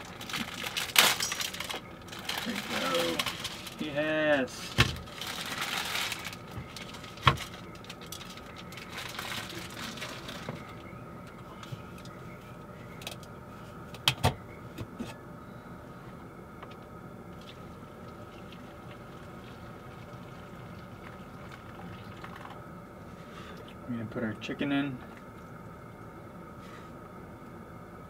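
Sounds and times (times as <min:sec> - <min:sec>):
seasoning packet crinkling: 0:00.0 - 0:03.9, 0:05.0 - 0:10.4.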